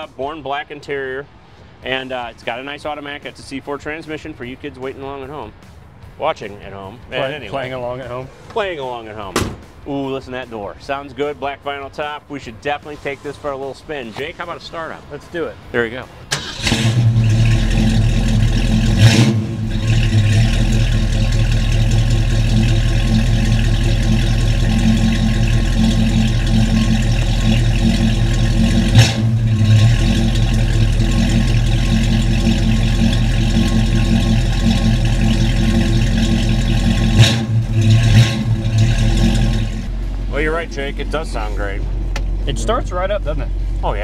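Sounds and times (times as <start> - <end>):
car engine idling: 15.6 - 44.0.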